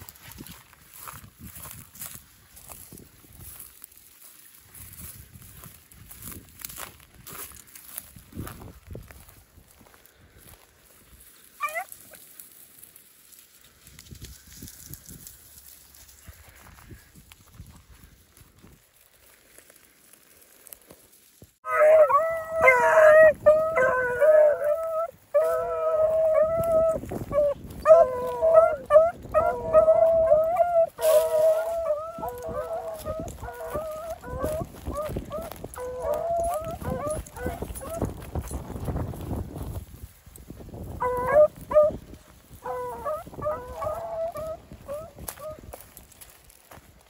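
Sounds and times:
dry grass rustling: 0:00.0 - 0:47.0
dogs baying: 0:21.6 - 0:38.1, 0:41.0 - 0:42.0, 0:42.6 - 0:45.6.

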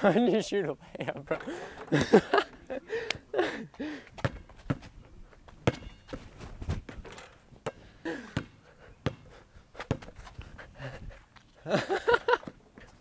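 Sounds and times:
basketball bouncing on concrete: 0:04.2 - 0:04.9, 0:05.5 - 0:07.0, 0:07.6 - 0:09.3, 0:09.9 - 0:10.2.

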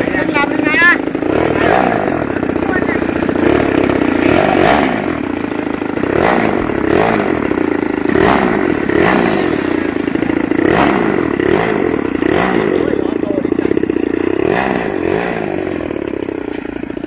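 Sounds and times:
model airplane engine buzzing: 0:00.0 - 0:17.0.

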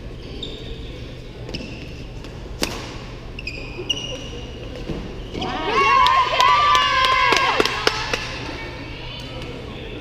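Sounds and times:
shoes squeaking on court floor: 0:00.1 - 0:02.5, 0:03.2 - 0:05.6.

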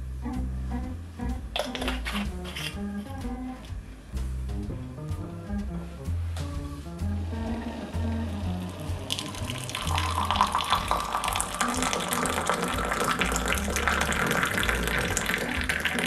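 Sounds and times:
water pouring into a glass mug: 0:08.6 - 0:16.0.

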